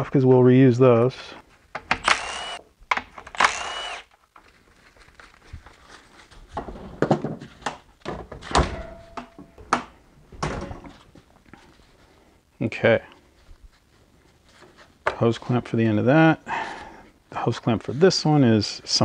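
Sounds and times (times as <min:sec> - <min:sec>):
cordless driver whirring: 0:01.9 - 0:02.6, 0:03.2 - 0:04.1
knocks and clunks of parts: 0:06.6 - 0:11.1.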